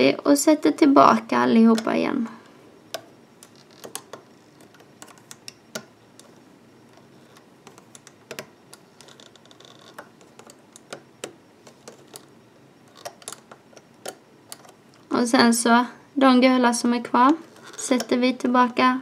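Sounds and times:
hook tapping plastic pegs: 0:02.9 - 0:06.4, 0:12.9 - 0:15.1.

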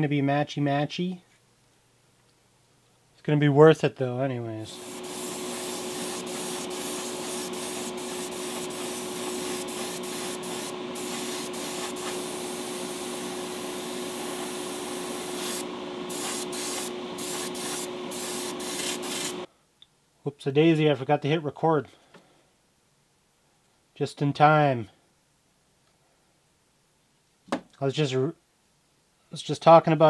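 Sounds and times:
steady hum: 0:04.4 - 0:19.5
airbrush spraying hiss: 0:04.7 - 0:19.5.

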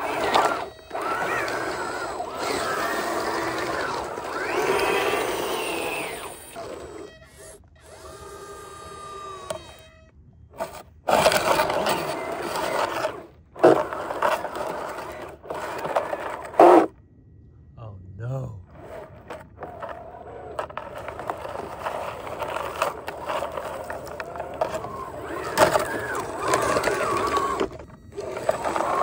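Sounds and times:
electric motors whining: 0:00.0 - 0:17.1, 0:18.6 - 0:29.0
gravel crunching and scraping: 0:18.7 - 0:29.0.

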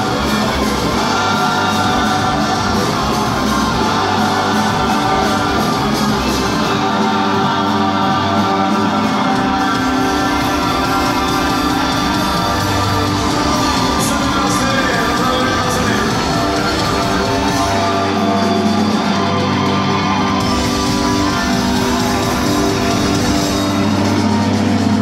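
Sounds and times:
live rock band: 0:00.0 - 0:25.0.

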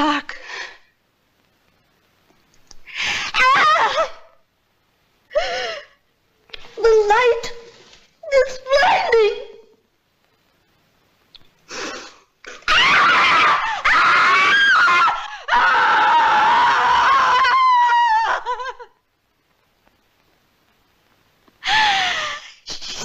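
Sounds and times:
woman screaming: 0:03.3 - 0:04.4, 0:12.6 - 0:18.9
woman gasping: 0:21.6 - 0:22.6.

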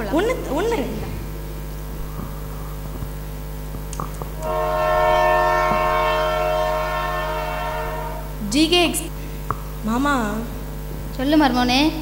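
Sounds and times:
low mains hum: 0:00.0 - 0:12.0
train horn blast: 0:04.4 - 0:08.7.

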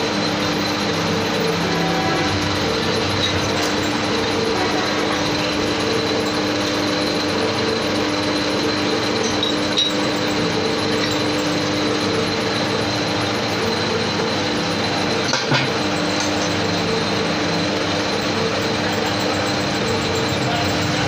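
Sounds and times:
metal lathe humming: 0:00.0 - 0:21.0.

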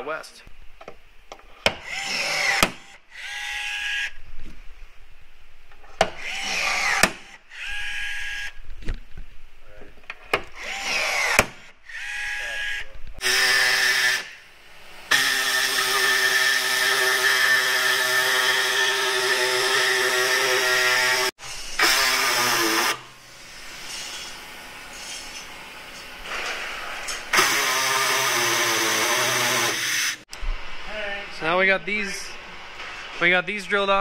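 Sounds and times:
cordless drill drilling: 0:01.8 - 0:04.2, 0:06.2 - 0:08.6, 0:10.5 - 0:23.1, 0:27.2 - 0:30.3.

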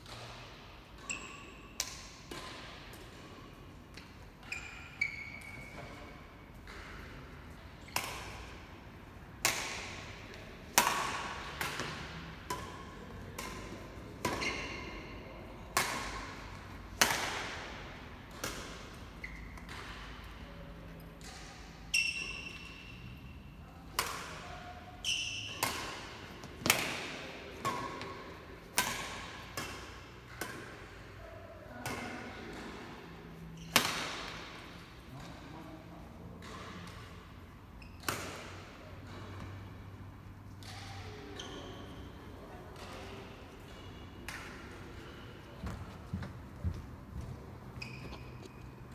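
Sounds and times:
racket hitting shuttlecock: 0:00.0 - 0:03.3, 0:07.8 - 0:08.6, 0:09.4 - 0:20.4, 0:21.0 - 0:35.4, 0:37.8 - 0:39.9, 0:40.5 - 0:45.8
shoes squeaking on court: 0:04.4 - 0:05.8, 0:14.3 - 0:15.0, 0:19.2 - 0:20.2, 0:21.8 - 0:23.2, 0:41.4 - 0:42.2, 0:45.1 - 0:48.9.

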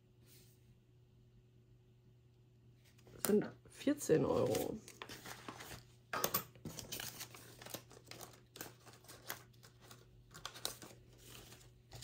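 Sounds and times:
paper crinkling and rustling: 0:04.3 - 0:06.0, 0:06.6 - 0:12.0.

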